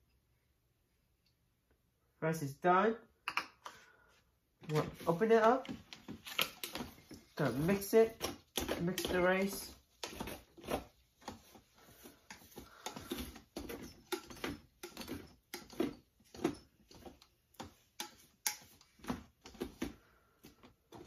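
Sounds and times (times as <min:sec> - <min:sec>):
utensil scraping a pot: 0:06.3 - 0:18.9.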